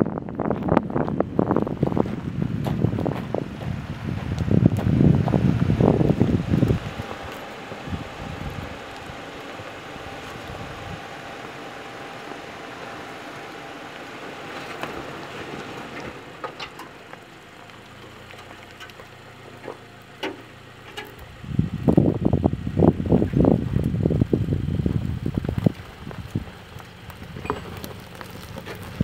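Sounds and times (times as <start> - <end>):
wind buffeting microphone: 0.0 - 13.0, 21.2 - 29.0
vehicle crawling over dirt: 0.0 - 29.0
stones crunching under tyres: 0.2 - 29.0.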